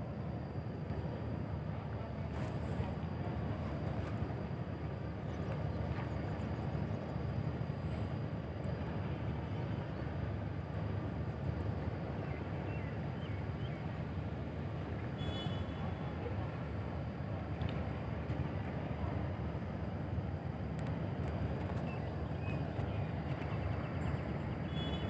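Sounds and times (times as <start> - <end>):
faint high whine: 0.0 - 25.0.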